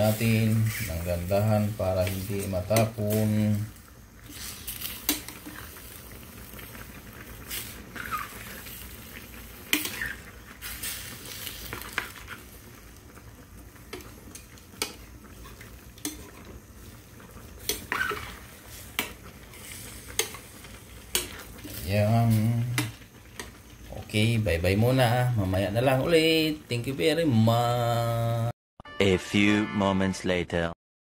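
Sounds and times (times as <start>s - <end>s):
food sizzling: 0.0s - 28.5s
metal spoon scraping a pan: 4.3s - 5.7s, 9.7s - 10.2s, 17.6s - 20.5s.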